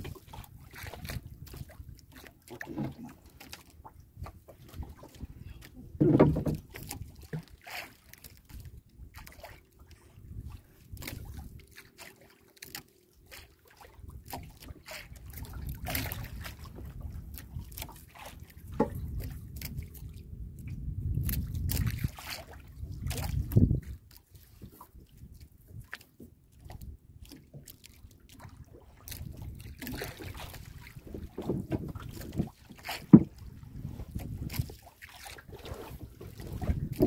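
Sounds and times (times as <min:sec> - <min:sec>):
wind on microphone: 0:00.0 - 0:02.0, 0:04.0 - 0:07.1, 0:10.1 - 0:11.7, 0:15.2 - 0:25.9, 0:29.1 - 0:34.9, 0:35.5 - 0:37.0
water lapping against boat hull: 0:00.0 - 0:37.0.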